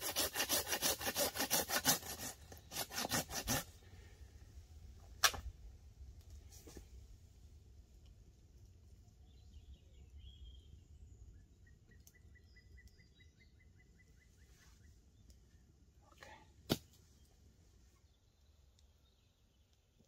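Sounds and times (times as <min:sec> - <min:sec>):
sharp snap: 0:05.2 - 0:05.5.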